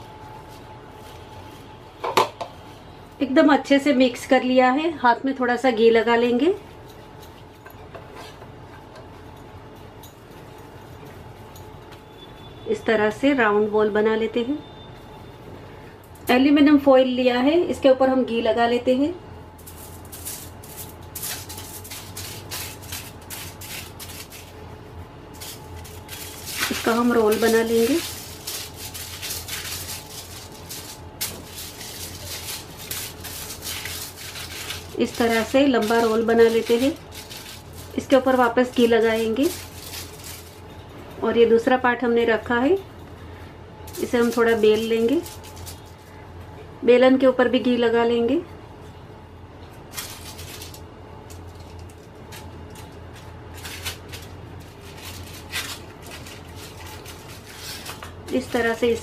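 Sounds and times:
aluminium foil crinkling: 0.0s - 3.8s, 19.6s - 40.9s, 43.9s - 46.2s, 49.7s - 59.0s
steady low hum: 0.0s - 59.0s.

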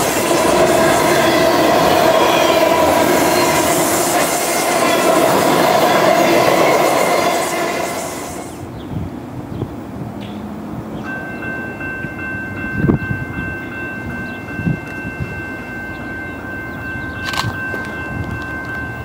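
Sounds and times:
train wheels squealing: 0.0s - 8.7s.

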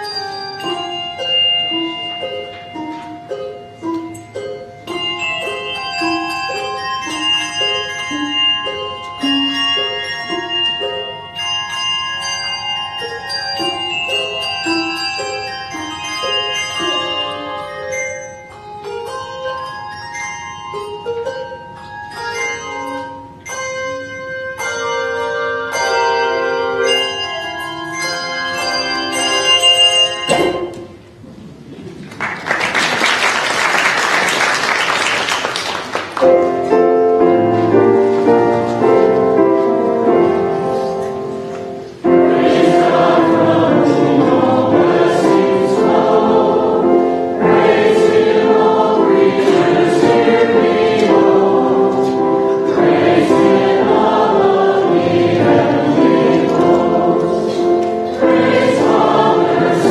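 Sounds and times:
tuned bells ringing: 0.0s - 31.0s, 42.1s - 55.4s
applause: 32.0s - 36.3s
sustained chords: 36.8s - 59.9s
congregation singing: 42.0s - 59.9s.

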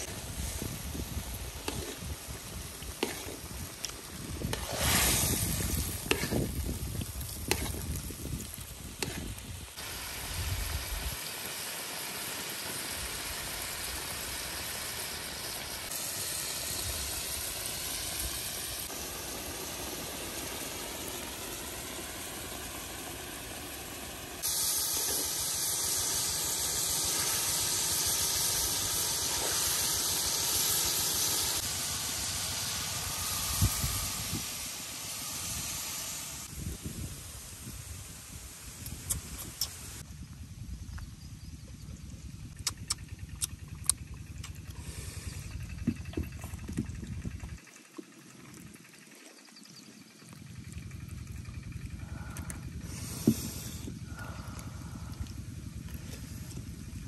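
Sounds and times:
sauce bubbling and hissing: 0.0s - 40.1s, 42.6s - 57.0s
metal spoon scraping wok: 1.6s - 2.1s, 3.0s - 3.5s.

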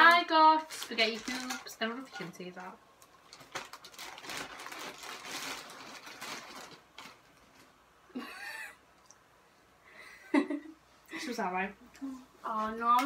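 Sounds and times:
plastic bag rustling: 0.0s - 7.8s.

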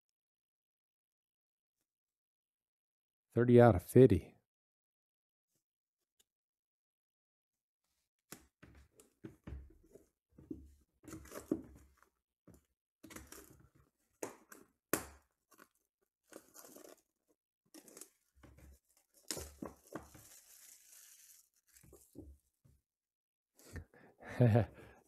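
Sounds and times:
cards being handled: 15.5s - 17.0s, 17.8s - 22.3s
plastic wrapper torn and crinkled: 15.5s - 17.1s, 17.7s - 18.3s, 19.0s - 22.1s.

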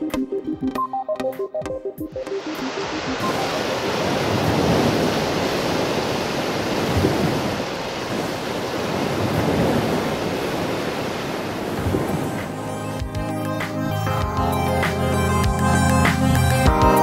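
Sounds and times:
ocean surf washing over beach: 2.3s - 12.7s.

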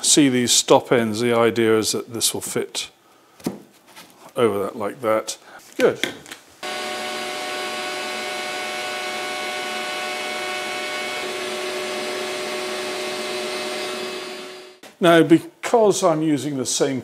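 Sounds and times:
dust extractor drawing air: 6.6s - 14.8s
router cutting plywood: 6.6s - 14.8s.

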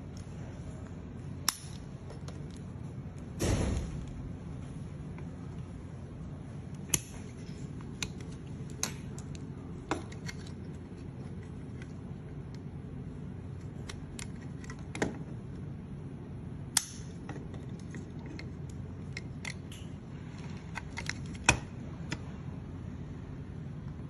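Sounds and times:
low background noise: 0.0s - 24.0s
sharp plastic snaps: 6.8s - 10.6s, 16.7s - 19.9s.

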